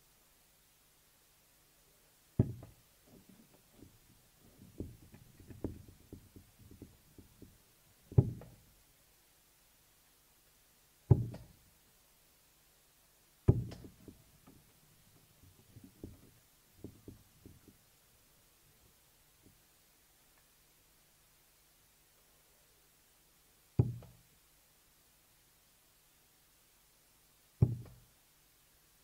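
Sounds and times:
darts thudding into dartboard: 2.4s - 2.7s, 13.5s - 13.9s
soft knocks and clicks: 2.4s - 8.6s, 13.5s - 17.9s.

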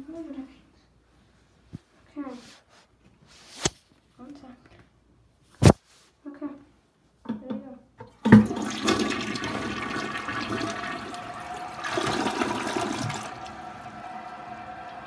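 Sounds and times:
toilet flushing: 8.1s - 15.0s.

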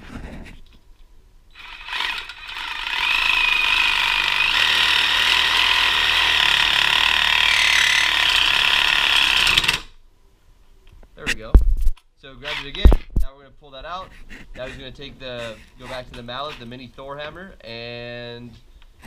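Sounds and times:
reciprocating saw cutting: 1.5s - 9.9s, 12.4s - 12.9s, 14.1s - 16.8s.

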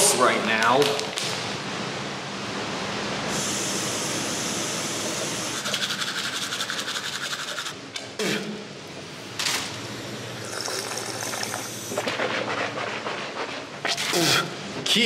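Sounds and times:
toothbrush scrubbing teeth: 5.6s - 7.7s, 10.4s - 14.3s.

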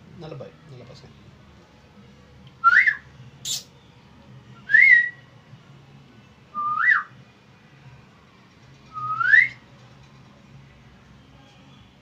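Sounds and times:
rising and falling whistles: 2.6s - 3.0s, 6.6s - 7.1s, 8.9s - 9.6s.

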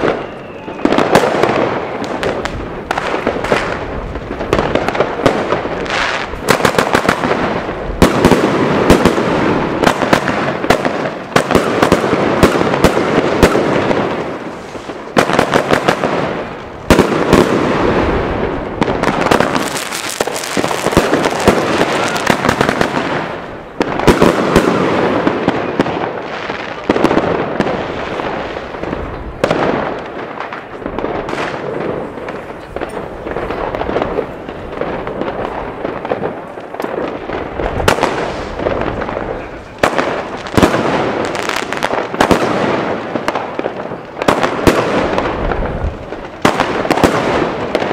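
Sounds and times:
firework shots and crackling: 0.0s - 47.9s.

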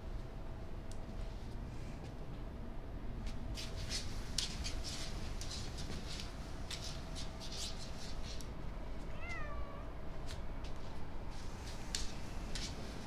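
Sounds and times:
faint steady hum: 0.0s - 13.0s
cat meowing: 9.1s - 9.9s.

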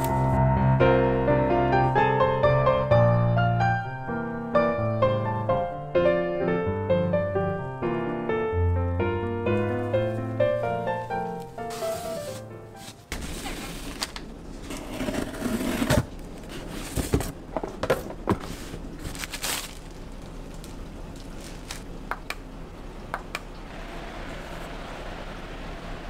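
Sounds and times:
cardboard and packaging rustling: 9.8s - 22.0s
box cutter scraping through tape: 14.7s - 16.1s.

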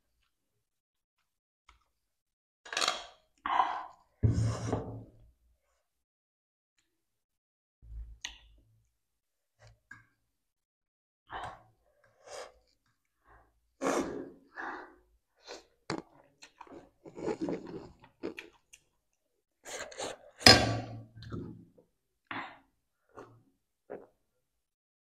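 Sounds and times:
slurping noodles: 13.8s - 14.8s, 15.4s - 18.6s.

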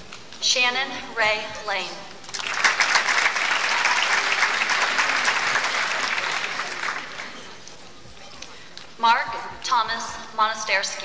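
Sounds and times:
audience applauding: 2.3s - 7.6s.

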